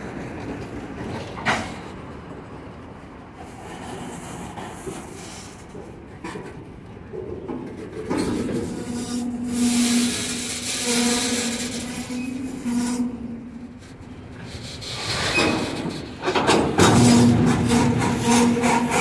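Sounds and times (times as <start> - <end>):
freight cars rolling on rails: 0.0 - 19.0.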